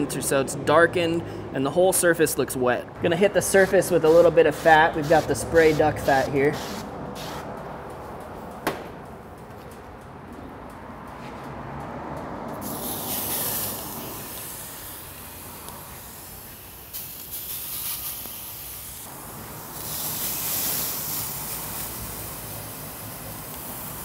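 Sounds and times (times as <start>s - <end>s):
chicken sizzling on grill: 12.6s - 24.0s.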